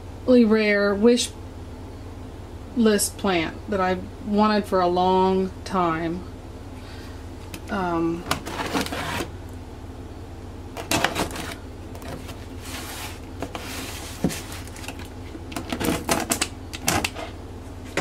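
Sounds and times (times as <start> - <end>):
cardboard scraping: 8.2 - 9.4, 10.8 - 18.0
knocks and rustles on cardboard box: 10.8 - 15.0.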